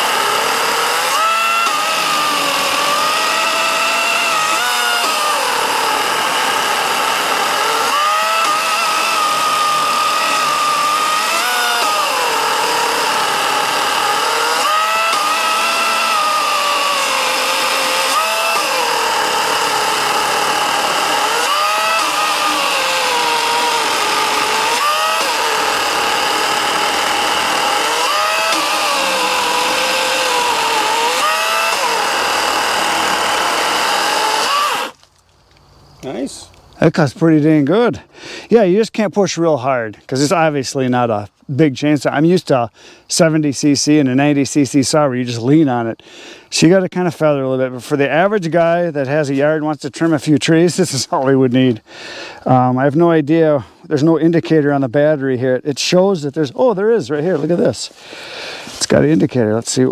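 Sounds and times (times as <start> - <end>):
electric chainsaw cutting log: 0.0 - 35.1, 57.1 - 59.2.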